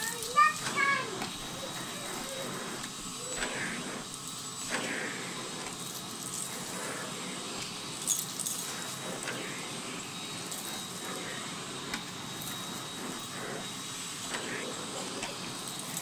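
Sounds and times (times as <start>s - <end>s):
vacuum cleaner running: 0.0s - 16.0s.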